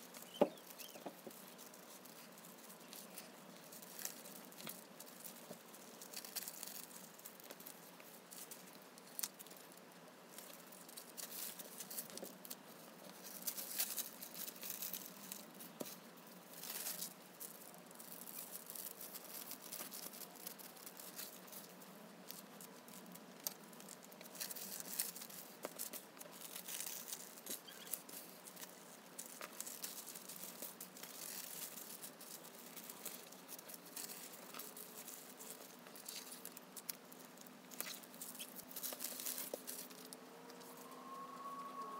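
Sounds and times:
tissue paper rustling: 0:23.8 - 0:41.9.

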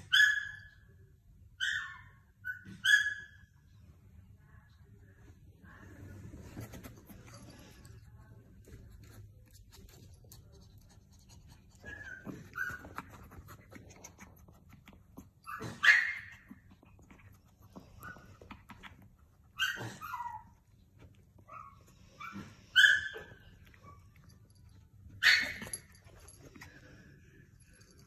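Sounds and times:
small dog whining and barking: 0:00.0 - 0:00.8, 0:01.6 - 0:03.5, 0:15.4 - 0:16.6, 0:19.4 - 0:20.8, 0:21.4 - 0:24.3, 0:25.2 - 0:25.9.

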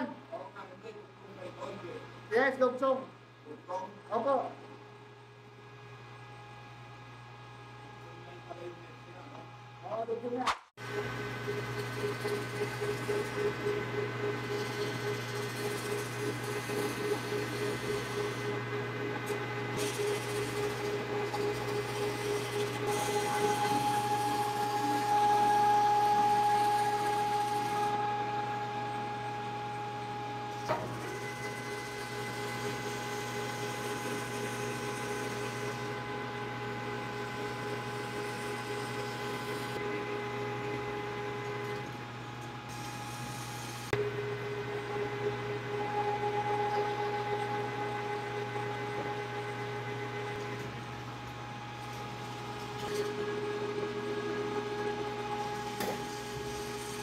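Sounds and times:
sharp click: 0:10.4 - 0:10.7
metal lathe humming and whining: 0:10.8 - 0:57.0.

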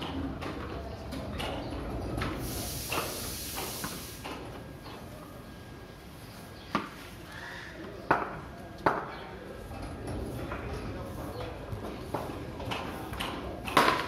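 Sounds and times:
cricket bat and ball knocks: 0:13.7 - 0:14.0.

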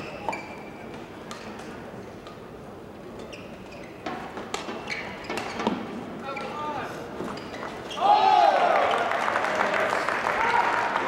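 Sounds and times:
shoes squeaking on court: 0:00.0 - 0:01.7, 0:03.1 - 0:08.0.

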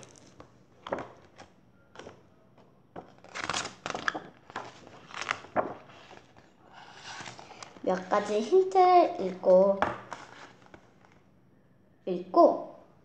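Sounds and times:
book pages rustling: 0:00.0 - 0:09.3, 0:09.9 - 0:11.3.

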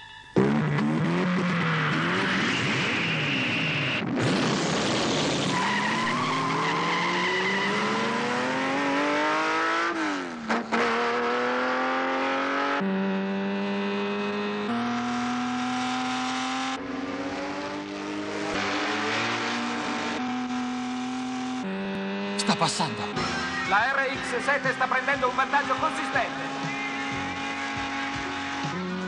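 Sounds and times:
race car engine revving: 0:00.4 - 0:29.0.

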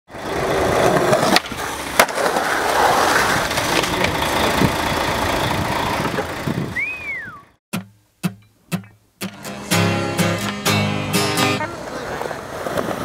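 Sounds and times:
skateboard clacks: 0:00.2 - 0:04.8, 0:11.6 - 0:13.0
skateboard rumbling on concrete: 0:00.2 - 0:07.3, 0:11.6 - 0:13.0.

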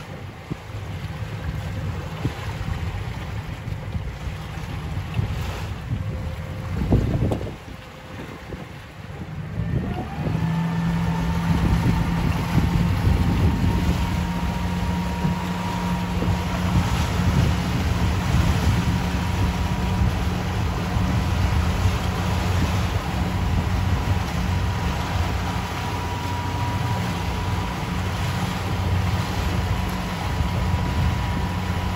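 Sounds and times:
motorboat engine droning: 0:00.0 - 0:31.9
wind buffeting microphone: 0:00.0 - 0:31.9.

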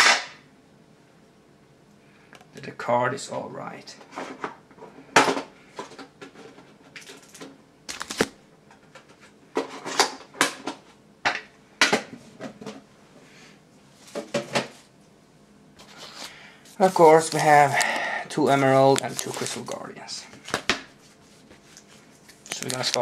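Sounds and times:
foil packs crinkling: 0:07.0 - 0:08.4, 0:15.8 - 0:20.0, 0:21.8 - 0:23.0.

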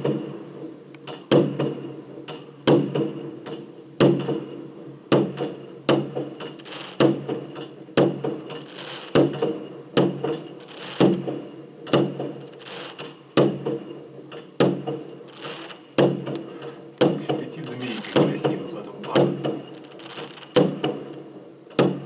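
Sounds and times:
fireworks bangs: 0:08.0 - 0:09.6, 0:10.6 - 0:11.4, 0:17.0 - 0:21.2
steady hum: 0:15.1 - 0:22.0.

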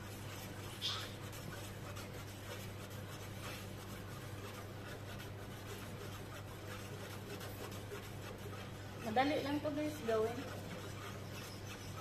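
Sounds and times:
metal spoon scraping a pot: 0:03.9 - 0:12.0.

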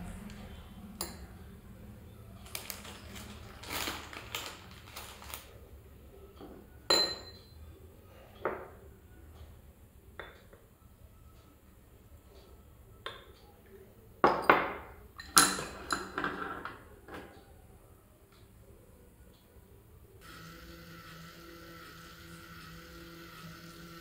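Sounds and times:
glass clinking: 0:06.4 - 0:07.6, 0:14.2 - 0:16.6.

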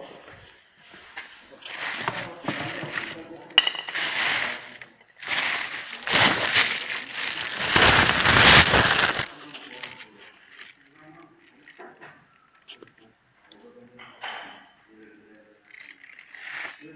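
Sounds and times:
plastic bag crinkling: 0:01.7 - 0:03.2, 0:03.9 - 0:11.7.

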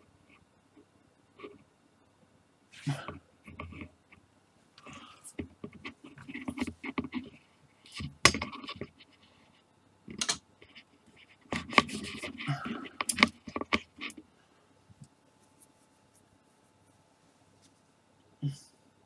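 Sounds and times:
plastic frames clicking and scraping: 0:04.8 - 0:09.1, 0:10.1 - 0:14.2.

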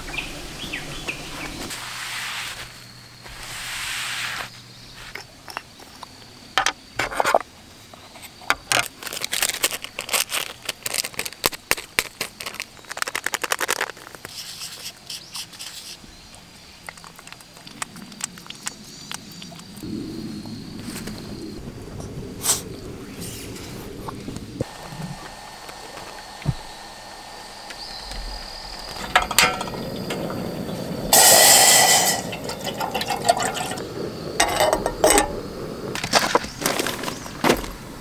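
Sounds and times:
cloth rubbing on metal table: 0:01.7 - 0:05.1
paper packet crinkling: 0:08.8 - 0:15.8.

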